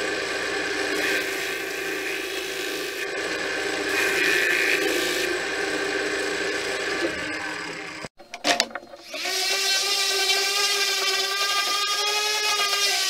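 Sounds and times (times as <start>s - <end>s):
lathe whirring: 0.0s - 8.1s
wood sanding rasp: 0.7s - 7.0s, 9.1s - 13.0s.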